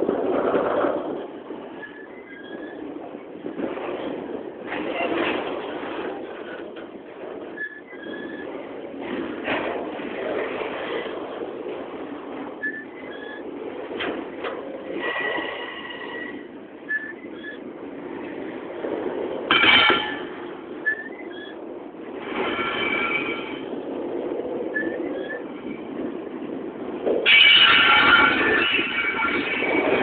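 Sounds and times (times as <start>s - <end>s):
loud clatter: 0.0s - 15.7s
freight train rumbling past: 0.0s - 30.0s
wheel squeals: 1.7s - 3.0s, 7.4s - 8.7s, 12.6s - 14.2s, 14.9s - 17.7s, 19.5s - 21.7s, 24.7s - 26.1s.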